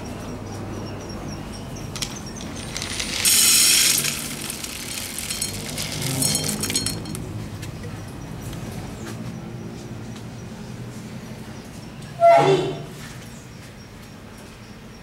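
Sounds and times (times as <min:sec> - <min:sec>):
loud clinking rattle: 0:01.9 - 0:07.3.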